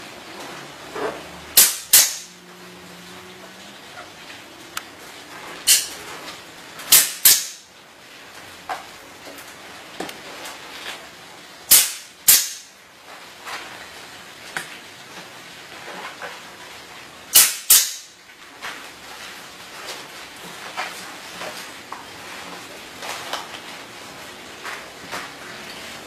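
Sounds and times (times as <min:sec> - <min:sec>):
pneumatic ring gun snapping: 0:01.6 - 0:02.3, 0:05.7 - 0:05.9, 0:06.9 - 0:07.6, 0:11.7 - 0:12.7, 0:17.4 - 0:18.1.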